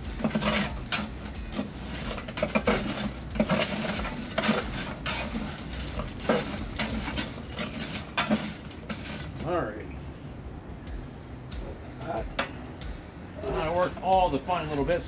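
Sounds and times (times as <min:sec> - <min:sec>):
spatula scraping grill grate: 0:00.0 - 0:09.7, 0:13.4 - 0:15.0.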